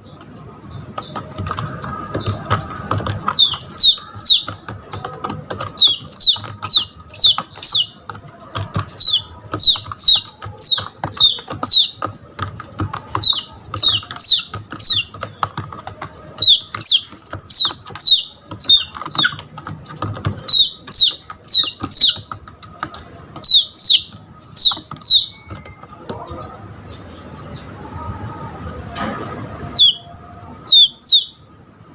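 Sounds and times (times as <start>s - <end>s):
chick distress peeps: 1.1s - 8.0s, 8.6s - 19.7s, 20.3s - 22.4s, 23.4s - 26.3s, 29.7s - 31.5s.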